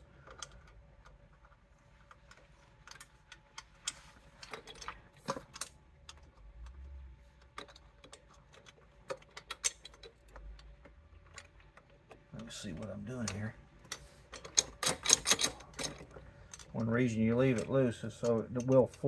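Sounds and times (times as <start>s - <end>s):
metal clicks and taps: 7.4s - 19.0s.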